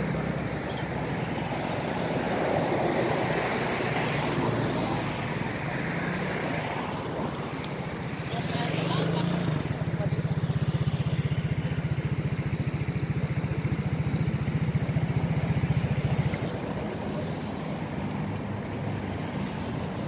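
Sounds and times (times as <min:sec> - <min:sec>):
vehicle engine idling: 0:07.0 - 0:18.9.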